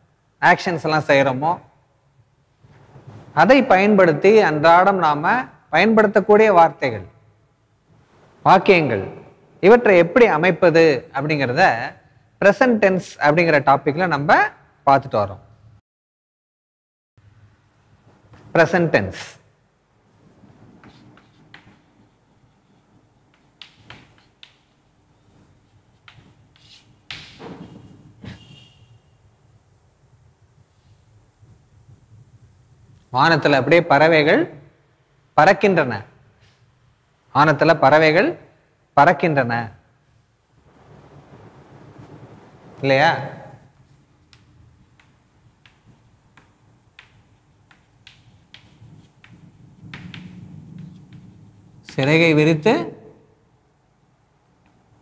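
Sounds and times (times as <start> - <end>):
chalk tapping on chalkboard: 20.8 - 28.6, 44.3 - 52.1
chalk scraping on chalkboard: 20.8 - 28.7, 44.9 - 52.0
knock on chalkboard: 44.4 - 52.0.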